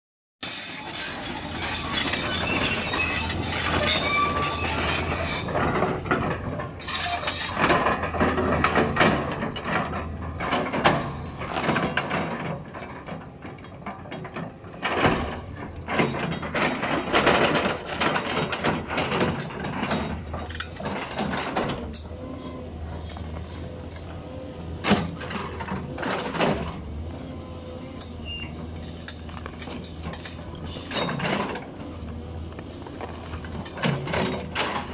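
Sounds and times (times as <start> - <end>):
excavator diesel engine running: 0.8 - 34.9.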